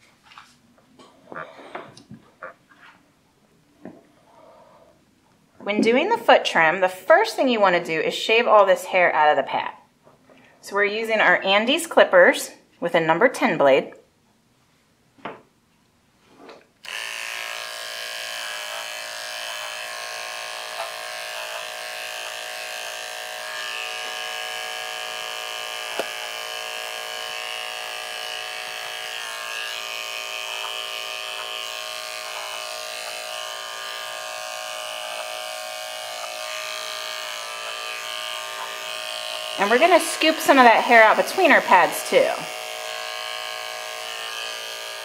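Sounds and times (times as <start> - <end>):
electric clippers humming: 16.8 - 45.0.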